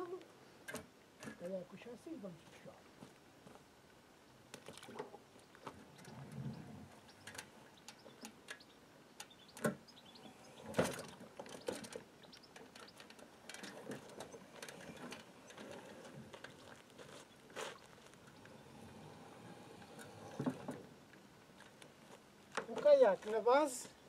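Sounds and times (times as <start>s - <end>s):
kayak hull knocking and scraping: 20.0s - 21.0s.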